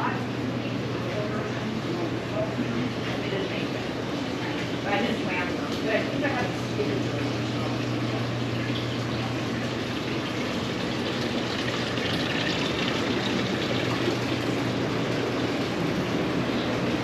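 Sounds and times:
cooler fan air rushing: 0:00.0 - 0:17.0
water trickling: 0:05.0 - 0:17.0.

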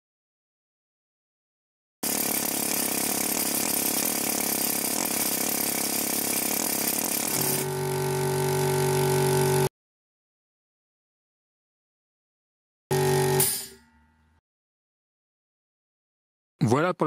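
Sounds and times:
air compressor running: 0:02.0 - 0:09.7, 0:12.9 - 0:13.8.

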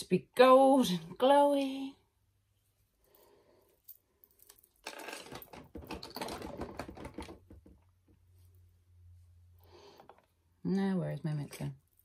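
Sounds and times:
makeup items clicking and clattering: 0:04.5 - 0:07.9.

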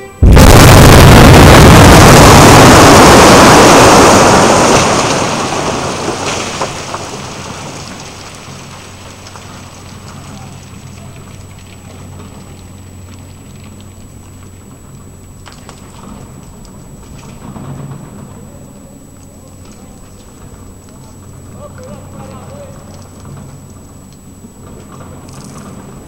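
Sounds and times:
explosion rumbling roar: 0:00.2 - 0:07.1.

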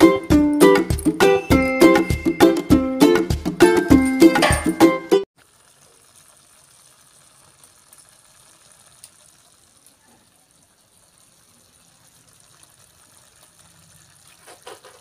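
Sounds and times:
curry simmering in a pan: 0:05.4 - 0:15.0
fire crackles: 0:05.4 - 0:15.0.

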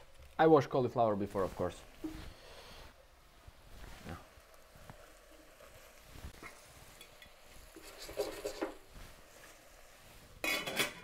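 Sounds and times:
vegetables clattering in saucepan: 0:10.4 - 0:11.0.

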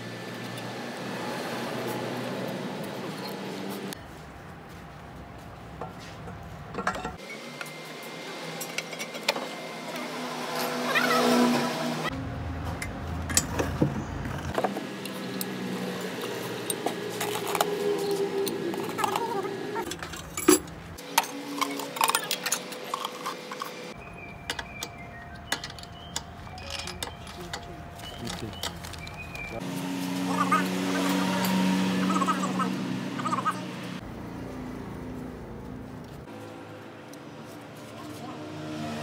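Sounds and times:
metal tools clinking and knocking: 0:06.7 - 0:07.2, 0:12.8 - 0:13.8, 0:15.1 - 0:23.8, 0:24.4 - 0:29.2.

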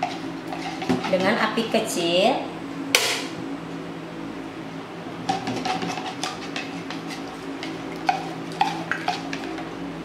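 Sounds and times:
spatula scraping and tapping pan: 0:00.0 - 0:01.5, 0:05.2 - 0:09.7.

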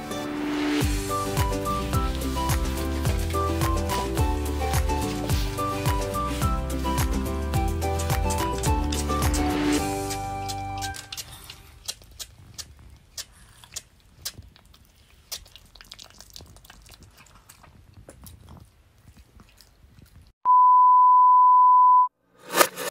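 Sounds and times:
dog chewing crunches: 0:07.9 - 0:20.3
steady beep tone: 0:20.5 - 0:22.1.

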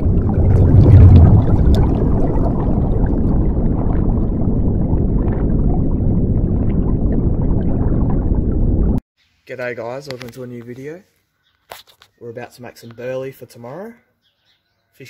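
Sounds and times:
underwater rushing water: 0:00.0 - 0:09.0.

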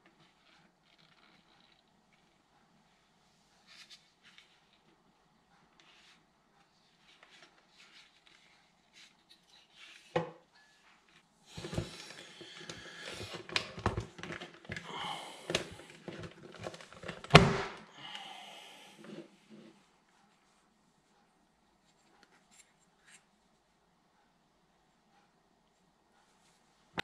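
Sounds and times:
plastic scraping and creaking: 0:00.1 - 0:01.9, 0:11.5 - 0:14.9, 0:15.5 - 0:17.6.

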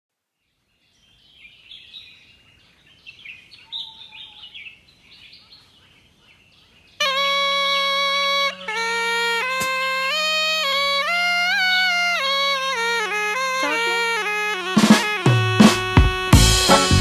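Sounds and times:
birds chirping: 0:00.5 - 0:17.0
reedy wind instrument with drone: 0:07.0 - 0:17.0.

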